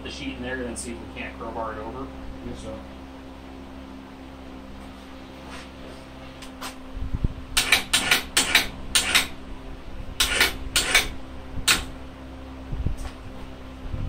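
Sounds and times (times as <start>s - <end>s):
metallic clicks and clanks: 10.2s - 11.1s.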